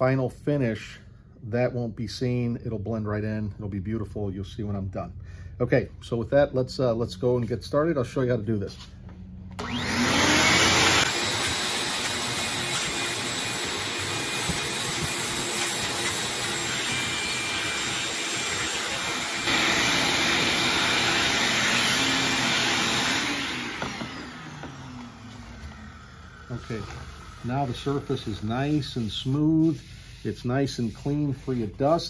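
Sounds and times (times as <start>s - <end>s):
vacuum cleaner running: 9.4s - 29.0s.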